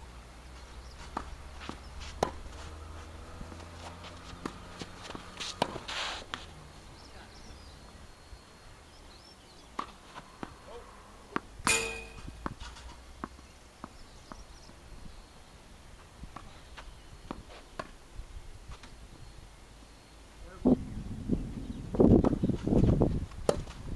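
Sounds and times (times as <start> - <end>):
footsteps and scuffs: 0.5 - 6.6
tennis ball bouncing on court: 1.0 - 2.6, 3.6 - 6.4, 11.3 - 14.8
tennis ball struck by rackets: 1.0 - 2.6, 4.4 - 6.4, 11.3 - 14.0.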